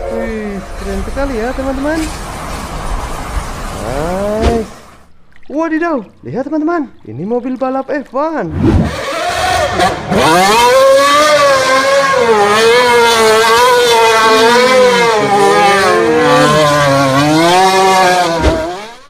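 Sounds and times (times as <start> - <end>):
racing car engine revving: 8.6 - 19.0.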